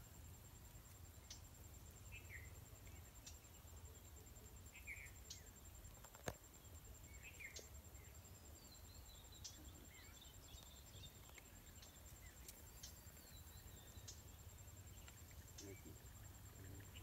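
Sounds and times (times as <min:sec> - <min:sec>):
bird chirps: 0:04.7 - 0:05.6, 0:07.0 - 0:17.0.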